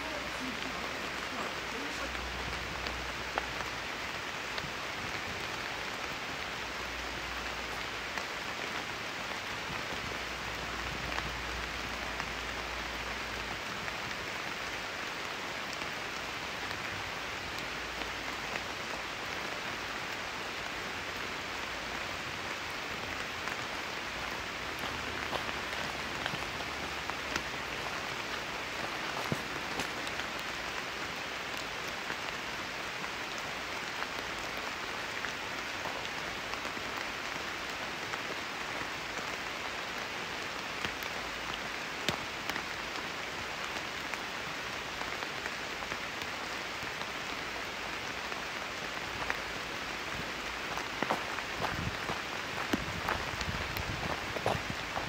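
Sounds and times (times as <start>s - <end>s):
steady rain hiss: 0.0s - 55.0s.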